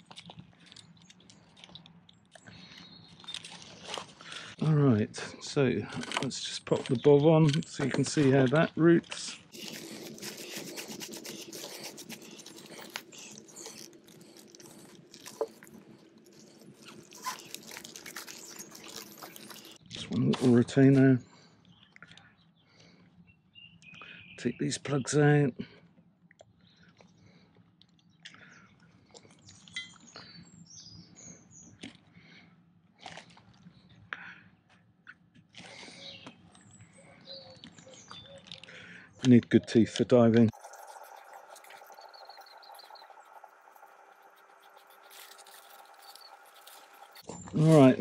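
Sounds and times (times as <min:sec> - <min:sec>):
rubber hose and plastic creaking: 0:00.0 - 0:04.7, 0:05.8 - 0:21.1
faint steady hum: 0:40.5 - 0:47.9.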